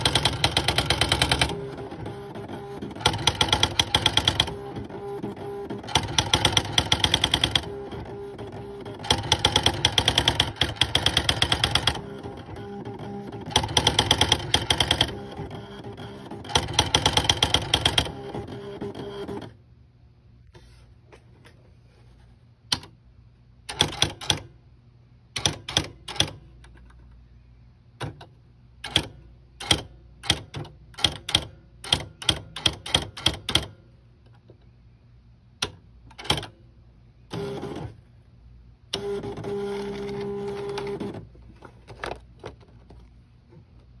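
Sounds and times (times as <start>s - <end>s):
typewriter clacks: 0.0s - 1.6s
typewriter print strikes: 0.0s - 19.5s, 23.7s - 24.5s, 25.4s - 26.4s, 28.0s - 33.8s, 35.6s - 36.6s, 39.0s - 41.2s
typewriter motor hum: 0.0s - 19.6s, 23.7s - 24.5s, 28.8s - 33.7s, 38.9s - 41.3s.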